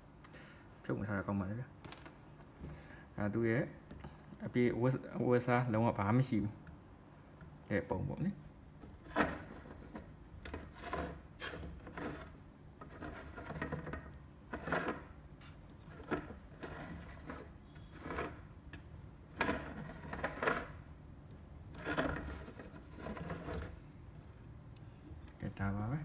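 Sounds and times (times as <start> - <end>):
base scraping on wooden table: 8.8 - 20.9, 21.7 - 23.9.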